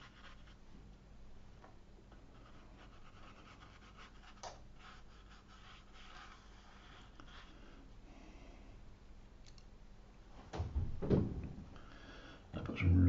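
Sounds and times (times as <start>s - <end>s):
brush strokes on paper: 0.0s - 0.6s, 2.3s - 7.8s.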